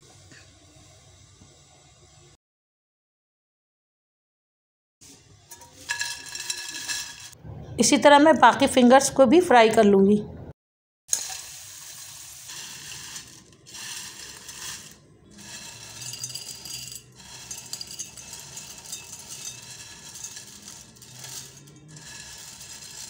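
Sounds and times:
hot oil sizzling: 0:05.5 - 0:07.4, 0:11.1 - 0:23.0
fried potato straws rattling: 0:05.6 - 0:07.4, 0:11.1 - 0:23.0.

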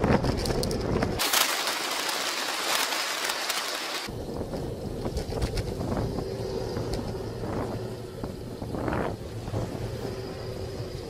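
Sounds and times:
wind rushing over microphone: 0:00.0 - 0:01.2, 0:04.1 - 0:11.0
road rumble: 0:00.0 - 0:11.0
motor traffic passing: 0:00.9 - 0:11.0.

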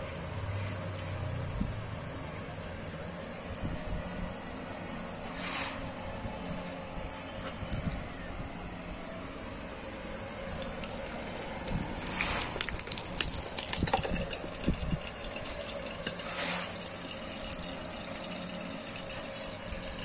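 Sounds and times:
fish frying in oil: 0:10.6 - 0:20.0.

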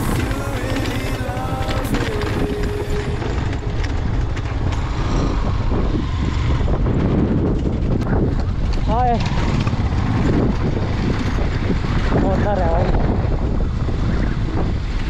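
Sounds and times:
tyres crunching on gravel: 0:00.0 - 0:06.6
motorcycle engine rumble: 0:00.0 - 0:15.0.

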